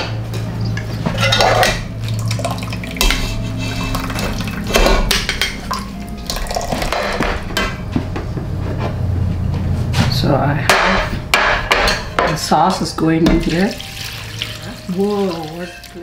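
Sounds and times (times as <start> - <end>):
steady low hum: 0.0 - 13.4
liquid splashing: 2.0 - 4.7, 13.4 - 16.0.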